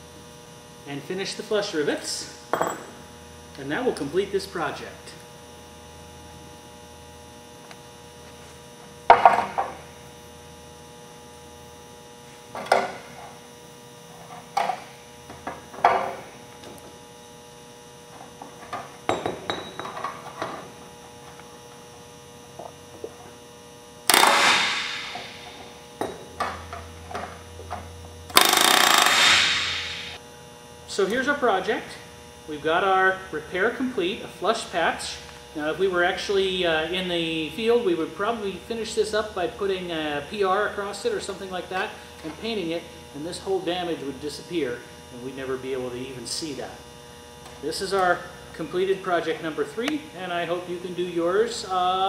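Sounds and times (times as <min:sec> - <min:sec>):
steady electrical hum: 0:00.0 - 0:52.0
pneumatic rivet gun bursts: 0:24.1 - 0:25.5, 0:28.3 - 0:30.2.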